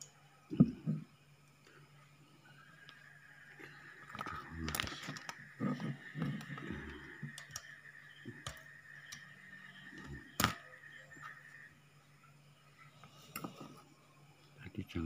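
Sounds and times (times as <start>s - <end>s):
faint high whine: 0.0s - 15.0s
tools clicking on circuit board: 7.2s - 7.7s, 10.3s - 10.7s.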